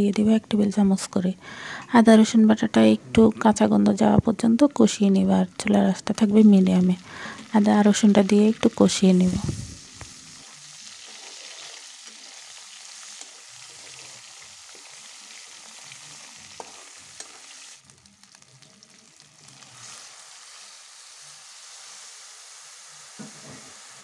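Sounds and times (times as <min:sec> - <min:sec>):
onions sizzling in hot oil: 0:04.0 - 0:24.0
spatula stirring and tapping pan: 0:16.5 - 0:17.5.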